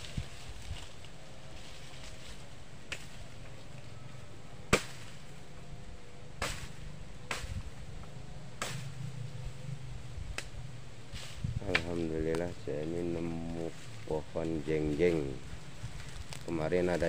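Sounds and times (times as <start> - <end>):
machete chopping wood: 4.7 - 5.2, 6.4 - 7.6, 8.6 - 8.9.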